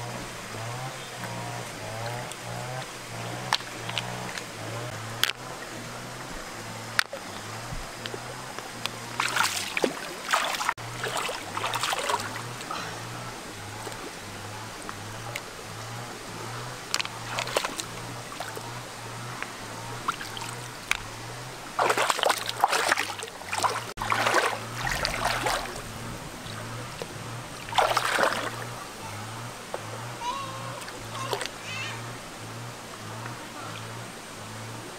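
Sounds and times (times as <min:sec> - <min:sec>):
stream flowing: 0:00.0 - 0:34.9
hand splashing in water: 0:21.8 - 0:25.8, 0:27.7 - 0:28.7.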